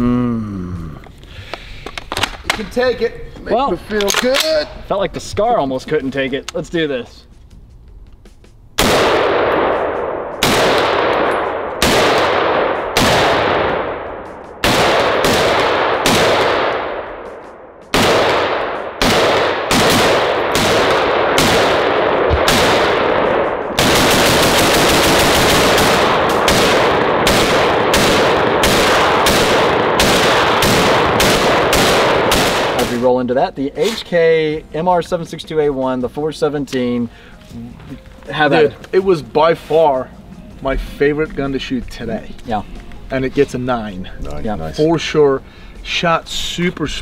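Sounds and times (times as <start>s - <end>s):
rifle shots with echo: 8.8s - 33.2s.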